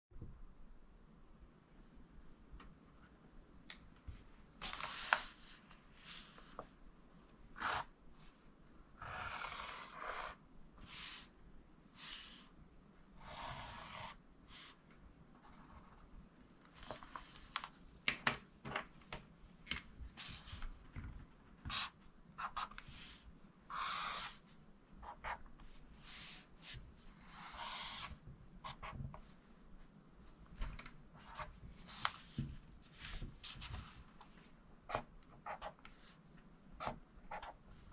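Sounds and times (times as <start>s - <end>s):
pen drawing on paper: 9.0s - 11.1s, 13.2s - 14.2s, 23.7s - 24.4s, 27.2s - 29.0s
pencil scratching on paper: 9.0s - 11.2s, 13.2s - 14.6s, 23.7s - 24.4s, 27.2s - 29.0s, 36.8s - 37.6s.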